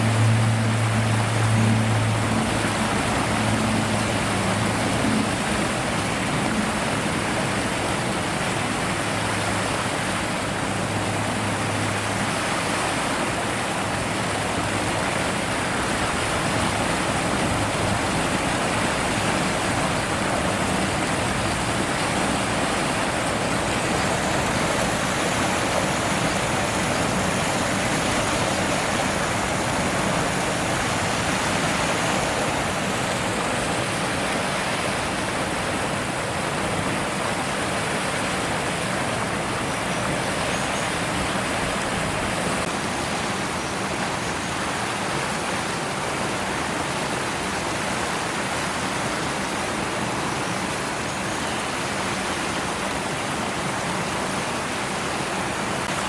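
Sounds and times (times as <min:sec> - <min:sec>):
low hum: 0:00.0 - 0:07.6
water rushing over concrete steps: 0:00.0 - 0:56.0.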